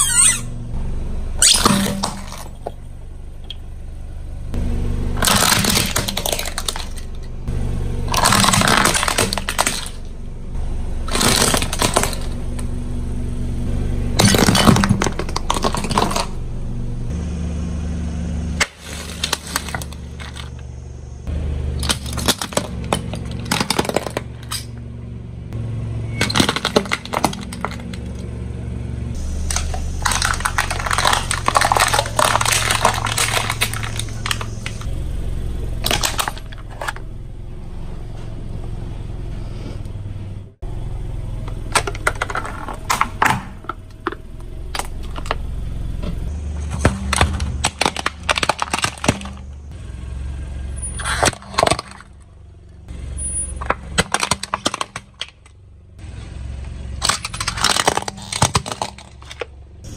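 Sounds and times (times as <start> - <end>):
low engine hum: 0.0 - 59.9
tyre crushing brittle objects: 1.4 - 2.8, 5.2 - 7.3, 8.0 - 10.2, 11.0 - 12.7, 14.2 - 16.4, 18.6 - 20.7, 21.7 - 24.8, 26.1 - 28.3, 29.2 - 35.0, 35.7 - 37.1, 41.5 - 45.5, 46.1 - 49.7, 50.8 - 52.3, 53.1 - 55.6, 56.7 - 59.9.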